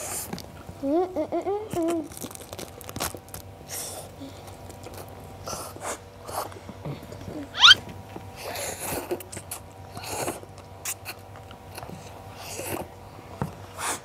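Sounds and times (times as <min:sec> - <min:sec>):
crackly chewing: 0:01.8 - 0:07.7
crunching roasted seaweed: 0:02.0 - 0:03.8
short wavering hum: 0:07.5 - 0:07.8
brief rising squeak: 0:07.6 - 0:07.8.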